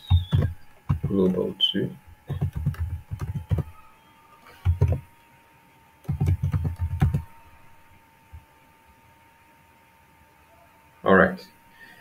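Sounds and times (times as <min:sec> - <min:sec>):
typing on computer keyboard: 0:00.1 - 0:01.4, 0:02.3 - 0:03.7, 0:04.6 - 0:05.0, 0:06.0 - 0:07.3.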